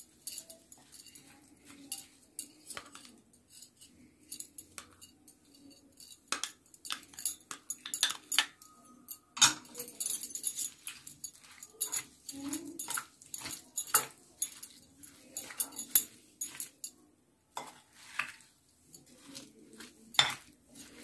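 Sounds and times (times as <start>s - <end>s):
spoon clicking against glass bowl: 4.3s - 8.7s, 9.4s - 16.9s.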